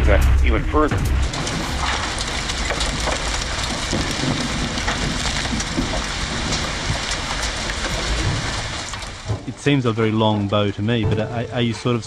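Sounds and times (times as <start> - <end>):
grit and debris pattering: 0.0 - 12.0.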